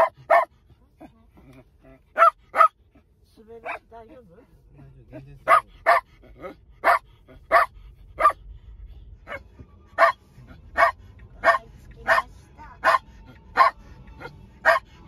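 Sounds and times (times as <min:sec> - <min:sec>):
dog barking: 0:00.0 - 0:00.5, 0:02.1 - 0:02.8, 0:03.6 - 0:03.9, 0:05.4 - 0:08.4, 0:09.3 - 0:14.9
faint road rumble: 0:00.0 - 0:15.0.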